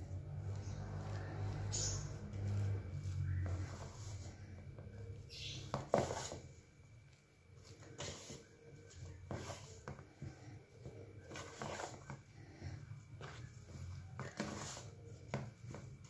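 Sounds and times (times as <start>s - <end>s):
spatula scraping in bowl: 0.4s - 6.6s, 7.7s - 10.4s, 11.2s - 12.2s, 13.2s - 15.4s.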